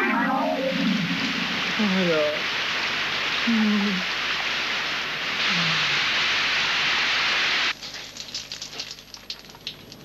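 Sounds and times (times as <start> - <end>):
steady rushing hiss: 0.0 - 7.8.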